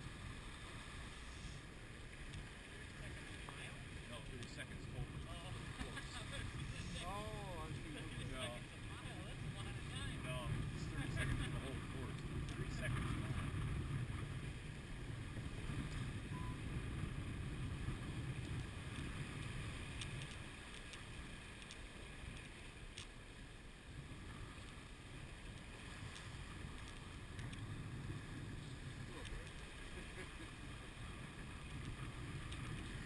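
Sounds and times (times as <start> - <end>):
water washing along hull: 0.0 - 33.0
faint clicks: 2.2 - 3.6, 18.4 - 23.2, 25.5 - 27.7, 28.6 - 29.8, 31.6 - 33.0
wind buffeting microphone: 3.1 - 22.6, 23.8 - 33.0.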